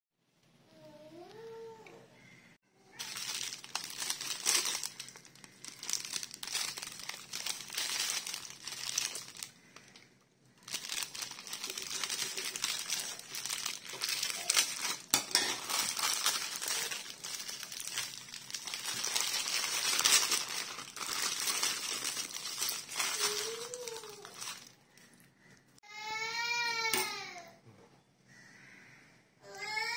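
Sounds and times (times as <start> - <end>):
plastic packaging crinkling: 2.9 - 25.3.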